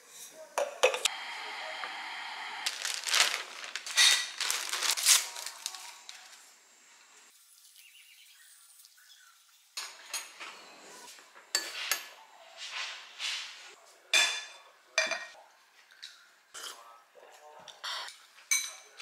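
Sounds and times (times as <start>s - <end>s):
dishes set down with a clink: 0.6s - 1.1s, 14.1s - 15.4s, 18.5s - 19.0s.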